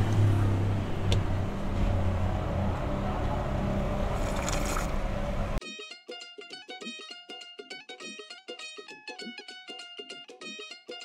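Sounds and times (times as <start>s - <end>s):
car cabin engine hum: 0.0s - 5.6s
plucked-string music: 5.6s - 11.0s.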